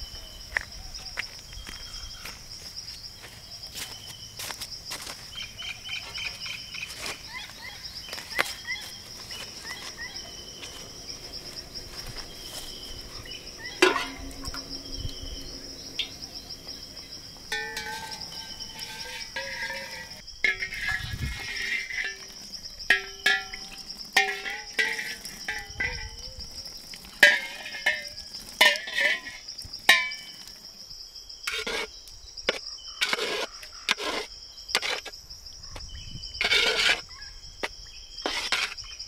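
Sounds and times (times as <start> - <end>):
crickets and insects chirring: 0.0 - 39.0
cooking pots knocking: 13.4 - 26.4, 27.2 - 30.4
ringing pot clank: 13.6 - 15.2, 16.0 - 16.4, 17.4 - 26.4, 27.2 - 30.4.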